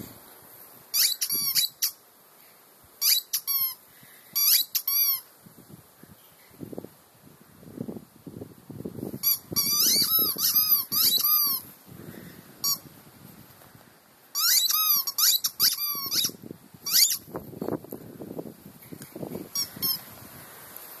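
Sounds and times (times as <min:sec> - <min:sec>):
squeaky dog toy squeaking: 0:00.9 - 0:02.0, 0:03.0 - 0:03.8, 0:04.4 - 0:05.2, 0:09.2 - 0:11.6, 0:12.6 - 0:12.8, 0:14.4 - 0:17.2, 0:19.6 - 0:20.0.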